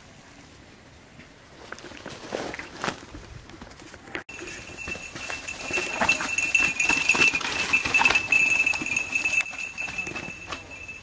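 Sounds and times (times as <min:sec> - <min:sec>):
mountain bike rattling on dirt trail: 0:04.3 - 0:11.0.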